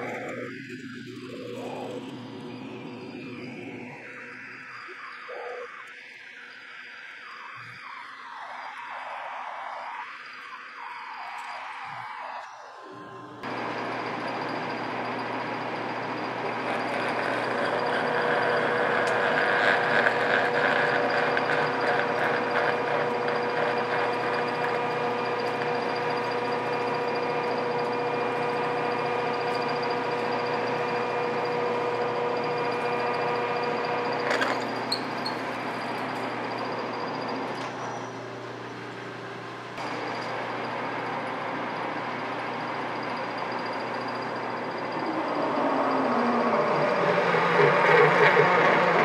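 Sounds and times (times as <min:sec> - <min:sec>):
lathe motor hum with whine: 0:00.0 - 0:49.0
drill cutting metal: 0:13.4 - 0:38.4, 0:39.8 - 0:49.0
lathe click: 0:16.4 - 0:27.9.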